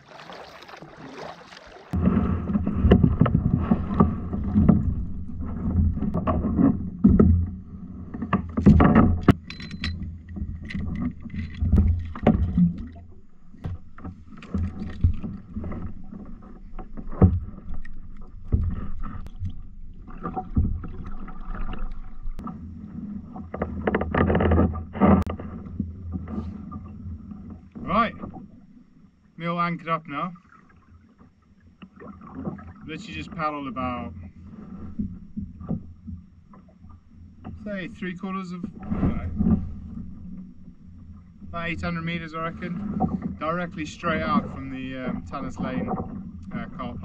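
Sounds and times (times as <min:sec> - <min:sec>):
paddle knocking against hull: 0:00.0 - 0:09.5, 0:10.3 - 0:28.5
water rumbling against hull: 0:00.0 - 0:47.0.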